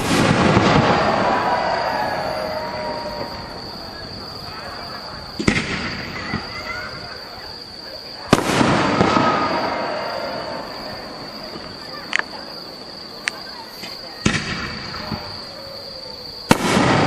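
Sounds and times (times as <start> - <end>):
firework shells bursting: 0.0 - 3.5.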